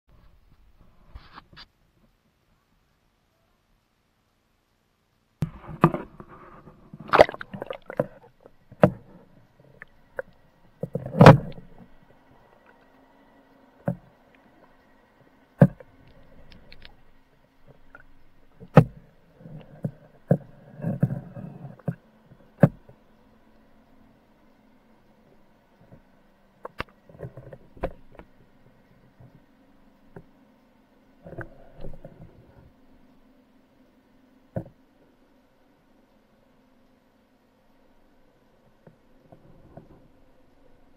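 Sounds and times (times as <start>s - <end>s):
faint steady hum: 0.1s - 40.9s
water sloshing against housing: 5.8s - 9.1s.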